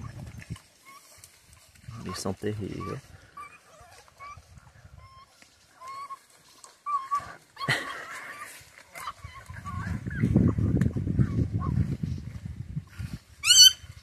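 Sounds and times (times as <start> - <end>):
dogs squeaking calls: 2.8 - 10.3, 13.4 - 13.8
rough noise from dogs: 3.2 - 11.8.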